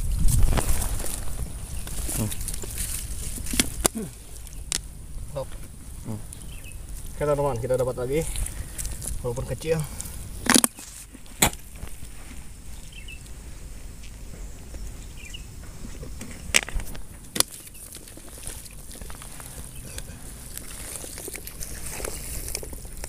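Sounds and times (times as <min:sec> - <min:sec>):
hands digging through wet mud: 0:17.3 - 0:23.0.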